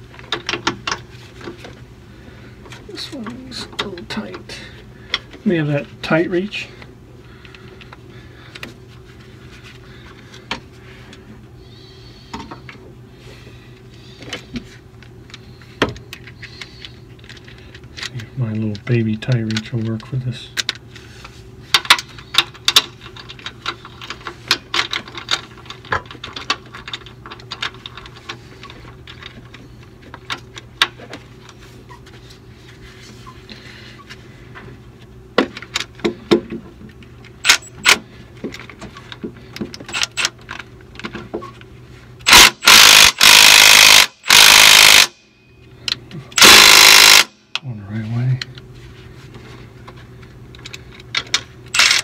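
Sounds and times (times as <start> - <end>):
hand ratchet clicking: 42.2 - 45.2, 46.4 - 47.4, 51.8 - 52.0
impact wrench bursts: 42.2 - 45.2, 46.4 - 47.4, 51.7 - 52.0.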